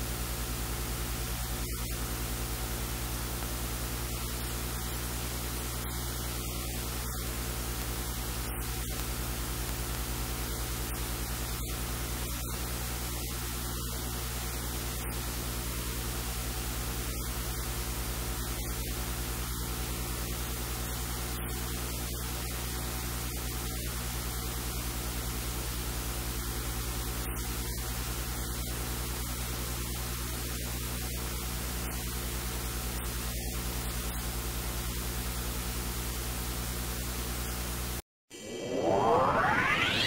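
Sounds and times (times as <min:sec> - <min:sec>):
steady loud hiss: 0:00.0 - 0:19.1.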